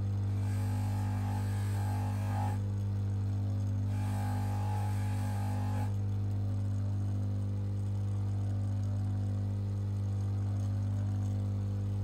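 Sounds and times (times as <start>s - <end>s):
polishing motor humming: 0.0s - 2.7s, 3.9s - 6.0s.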